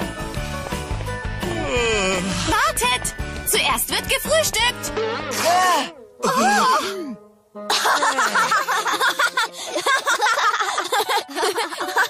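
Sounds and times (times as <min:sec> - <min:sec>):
vocal exclamation: 0:05.3 - 0:07.2
children giggling: 0:07.7 - 0:12.0.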